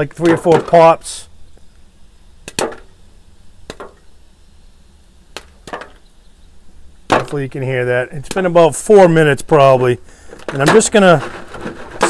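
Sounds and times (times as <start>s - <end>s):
popcorn kernels popping: 2.4s - 3.0s, 3.6s - 4.1s, 5.3s - 6.1s, 8.2s - 8.6s.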